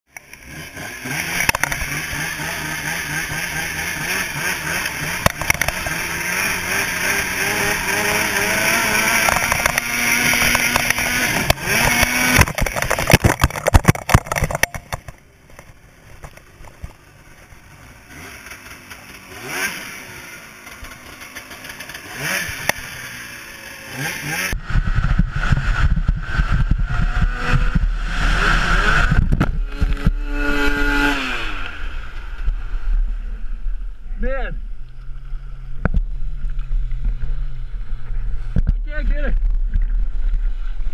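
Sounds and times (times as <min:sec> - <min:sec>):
snowmobile engine revving: 0:00.2 - 0:14.7, 0:17.6 - 0:39.3
heavy low rumble: 0:24.5 - 0:40.9.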